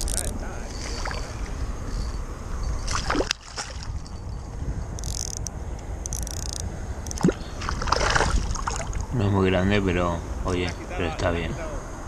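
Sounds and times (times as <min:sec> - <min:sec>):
low rumble: 0:00.0 - 0:10.5
fish splashing in water: 0:00.8 - 0:01.6, 0:02.8 - 0:04.2, 0:07.1 - 0:09.1.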